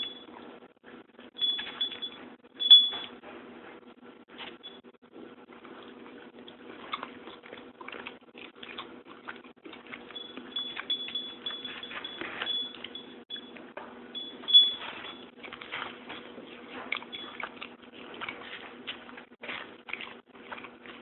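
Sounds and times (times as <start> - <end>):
cat licking and chewing: 5.1 - 13.7, 14.8 - 21.0.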